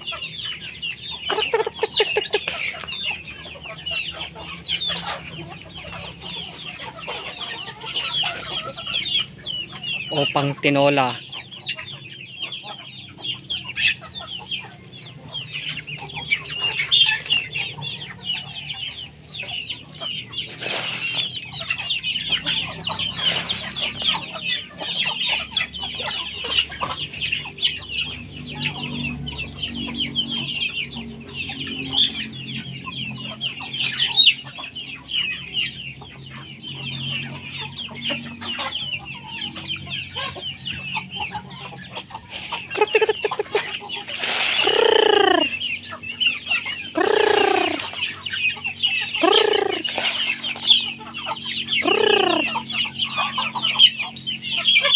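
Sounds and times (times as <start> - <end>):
chickens clucking and calling: 0.0 - 54.9.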